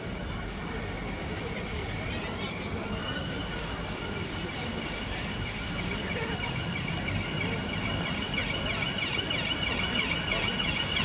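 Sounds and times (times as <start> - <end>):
city street traffic: 0.0 - 11.0
emergency vehicle siren wailing: 4.5 - 11.0.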